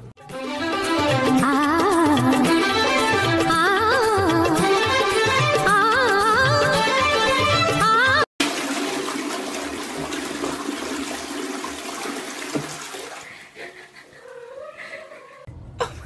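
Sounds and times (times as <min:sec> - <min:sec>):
toilet flushing: 0:08.4 - 0:14.0
cat meowing: 0:14.2 - 0:15.5.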